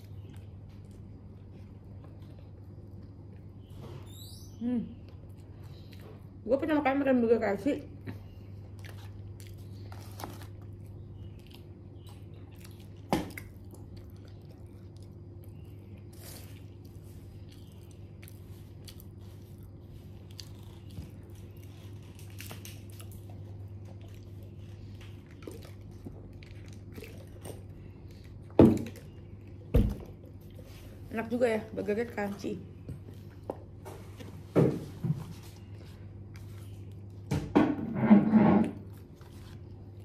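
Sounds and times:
person chewing crunchy food: 0:08.3 - 0:30.7.

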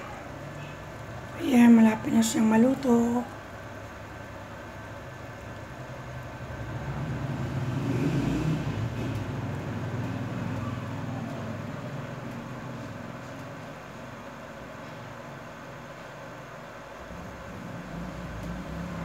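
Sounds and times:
vehicle passing by rumbling: 0:04.9 - 0:14.2, 0:17.0 - 0:19.0.

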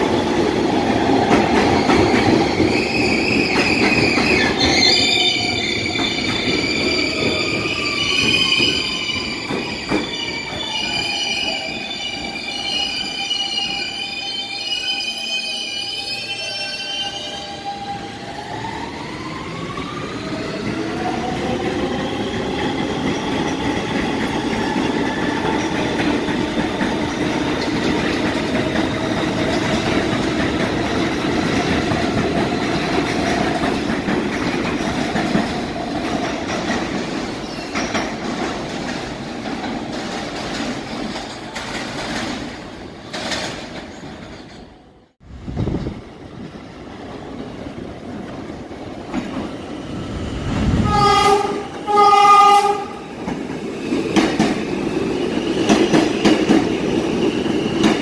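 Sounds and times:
wheels clickety-clack on rails: 0:00.0 - 0:04.9, 0:21.3 - 0:44.7, 0:45.6 - 0:49.6, 0:50.5 - 0:58.0.

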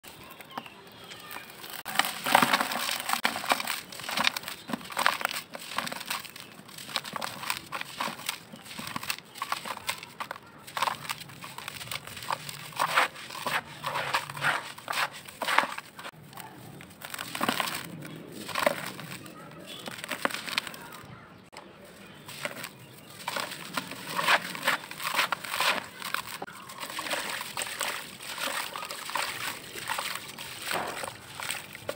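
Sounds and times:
packed sand crunching by hand: 0:00.1 - 0:31.9
grains falling into plastic tub: 0:01.9 - 0:10.1.

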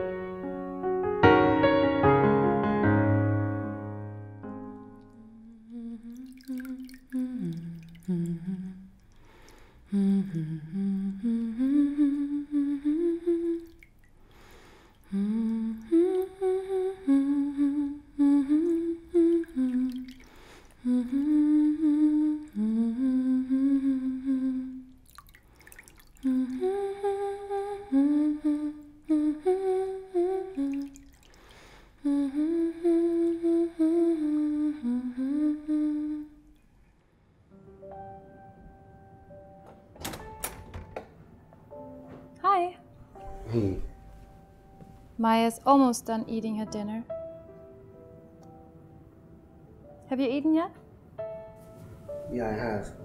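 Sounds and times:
woman humming: 0:05.1 - 0:09.0, 0:09.9 - 0:13.8, 0:15.1 - 0:20.2, 0:20.8 - 0:25.0, 0:26.2 - 0:31.1, 0:32.0 - 0:36.5, 0:42.4 - 0:44.0.

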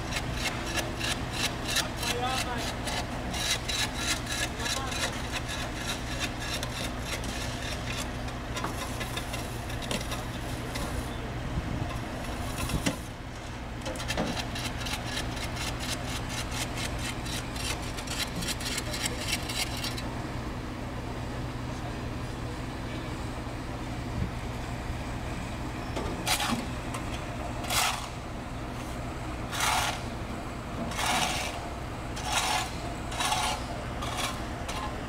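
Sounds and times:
hand tool scraping hot asphalt: 0:00.0 - 0:11.1, 0:13.8 - 0:20.1, 0:26.2 - 0:26.7, 0:27.6 - 0:28.2, 0:29.5 - 0:30.2, 0:30.9 - 0:35.0
steady low hum: 0:00.0 - 0:35.0.

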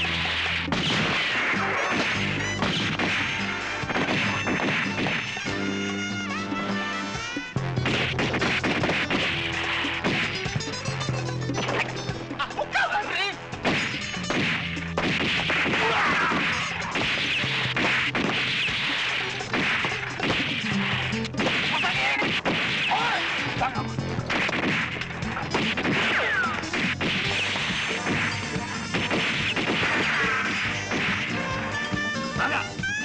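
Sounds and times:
gunshots in quick succession: 0:00.0 - 0:05.5, 0:07.8 - 0:10.6, 0:13.6 - 0:31.6
bullet ricochet whines: 0:00.0 - 0:05.6, 0:13.7 - 0:23.6, 0:24.3 - 0:32.3.

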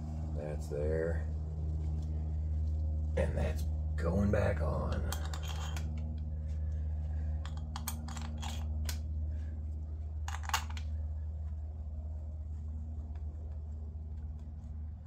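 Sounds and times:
low hum: 0:00.0 - 0:15.0
small parts and tools clicking: 0:04.9 - 0:06.2, 0:07.4 - 0:09.0, 0:10.2 - 0:11.0.

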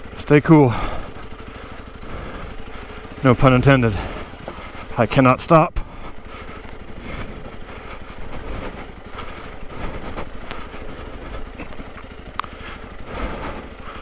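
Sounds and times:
motorcycle engine at low revs: 0:00.0 - 0:14.0.

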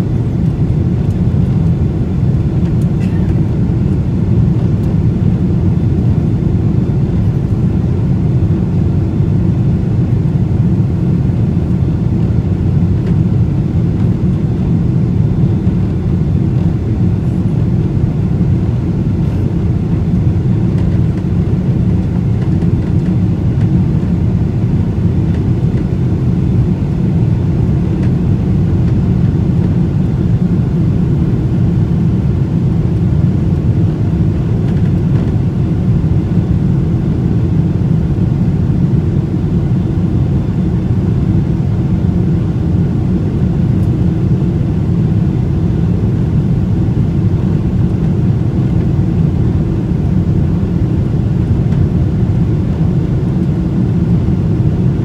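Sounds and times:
airplane engines droning: 0:00.0 - 0:55.0.

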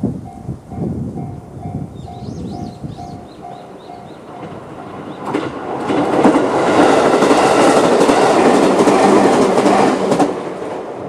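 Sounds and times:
electric train passing: 0:00.0 - 0:11.0
level crossing warning bell: 0:00.2 - 0:05.4.

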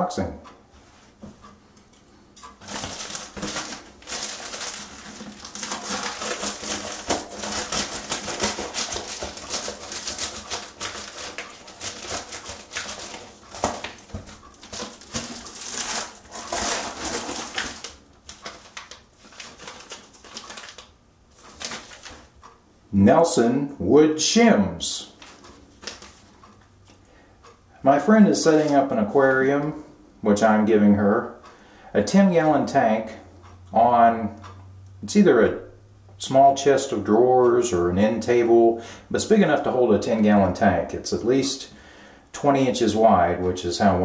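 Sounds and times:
packaging rustling and crinkling: 0:02.4 - 0:22.4, 0:25.2 - 0:27.0.

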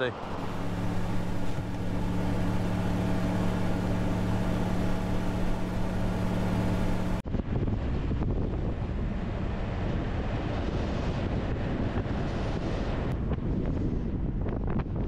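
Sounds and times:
vehicle engine idling: 0:00.2 - 0:07.2.

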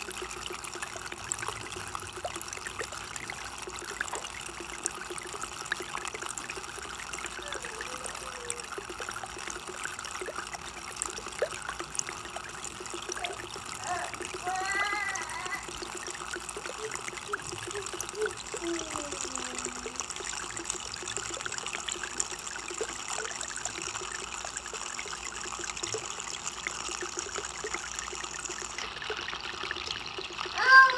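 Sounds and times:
water trickling: 0:00.0 - 0:30.9.

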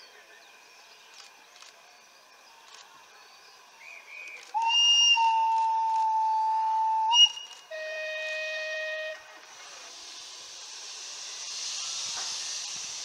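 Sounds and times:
steam locomotive whistle blasts: 0:04.5 - 0:09.5.

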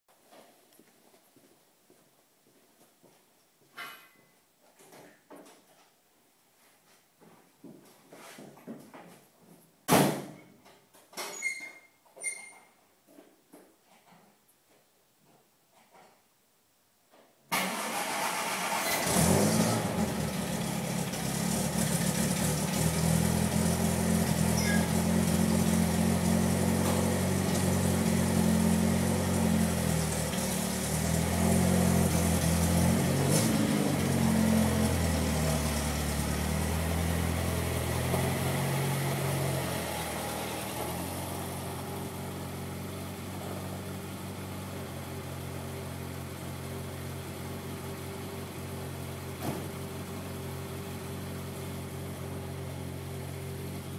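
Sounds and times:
car engine idling: 0:17.8 - 0:53.9.

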